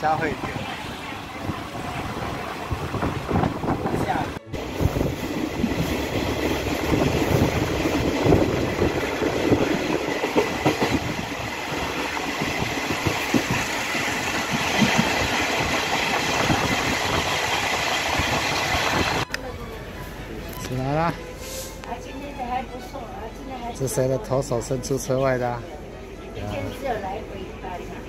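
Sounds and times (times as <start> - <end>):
train wheels clattering on track: 4.6 - 19.2.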